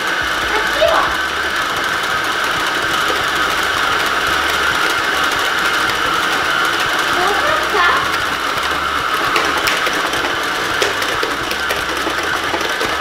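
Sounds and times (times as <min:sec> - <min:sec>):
stand mixer motor whirring: 0:00.0 - 0:13.0.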